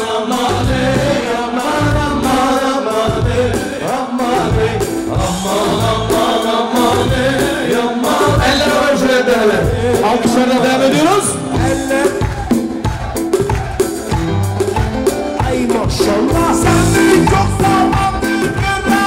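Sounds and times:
person singing: 0.0s - 13.1s, 15.0s - 19.0s
live band playing folk dance music: 0.0s - 19.0s.

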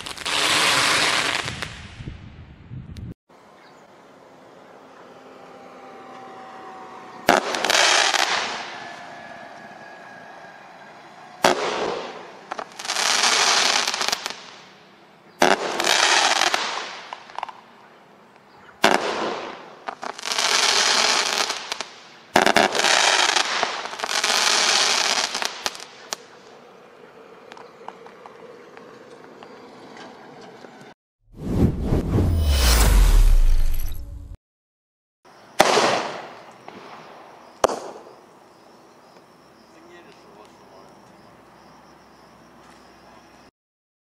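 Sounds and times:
rushing crackling smoke shots: 7.2s - 9.0s, 11.3s - 14.6s
firework bangs: 7.2s - 9.5s, 10.6s - 14.6s, 15.4s - 17.5s, 18.8s - 26.3s, 35.6s - 38.2s.

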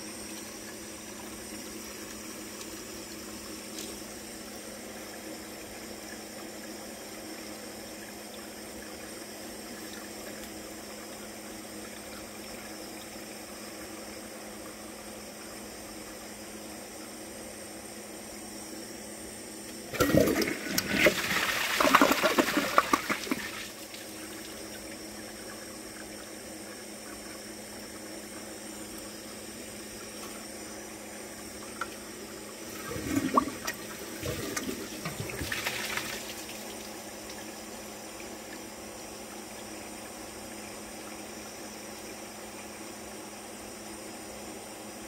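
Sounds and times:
toilet flushing: 19.9s - 30.4s, 31.4s - 38.7s.

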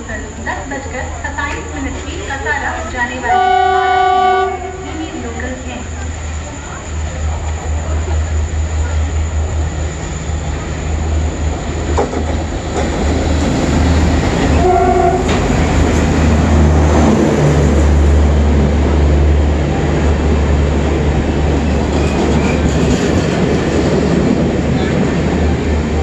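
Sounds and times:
diesel locomotive engines rumbling: 0.0s - 26.0s
train horn blast: 3.3s - 5.2s, 14.5s - 15.4s
train wheels clattering: 11.6s - 17.2s, 21.4s - 25.5s.

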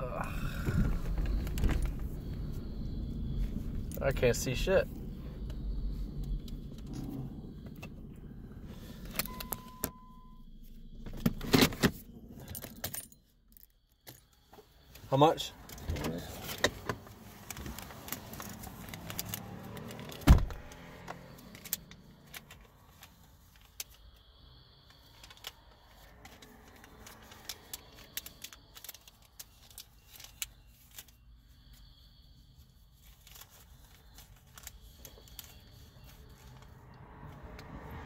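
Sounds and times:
papers and cards rustling: 15.7s - 20.2s, 24.9s - 31.9s, 32.8s - 36.8s.

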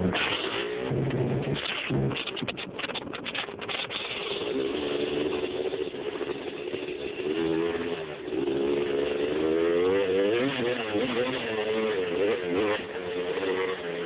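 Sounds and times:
quad engine revving: 0.0s - 14.0s.

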